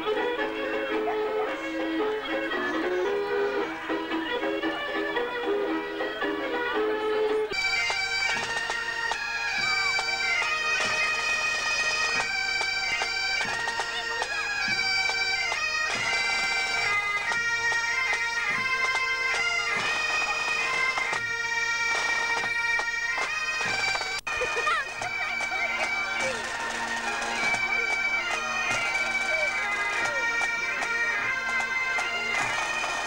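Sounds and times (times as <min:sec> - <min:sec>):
bagpipes with drones: 0:00.0 - 0:33.0
drums beating: 0:07.5 - 0:33.0.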